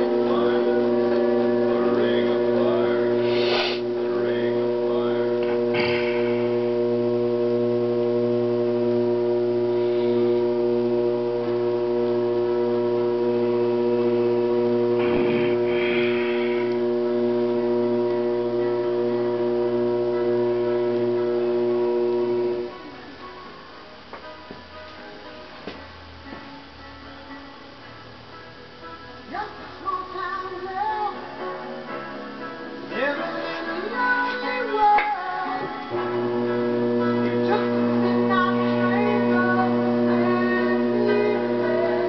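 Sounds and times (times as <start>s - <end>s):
potter's wheel motor humming: 0.0s - 23.0s, 32.8s - 42.0s
rubbing or scraping: 3.3s - 3.8s.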